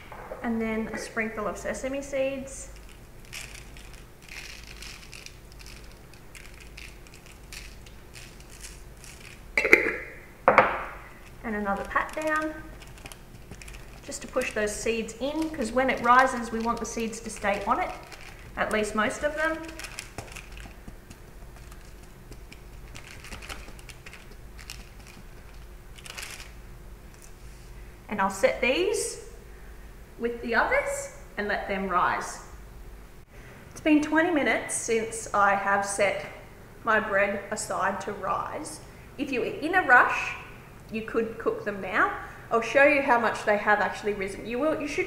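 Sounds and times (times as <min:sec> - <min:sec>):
seeds rustling and crackling: 0:02.4 - 0:09.6, 0:11.0 - 0:27.7
hand patting dough rolls: 0:10.5 - 0:26.4.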